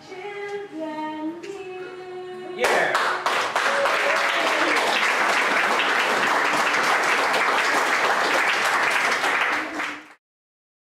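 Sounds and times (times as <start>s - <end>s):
audience applauding: 2.6s - 10.2s.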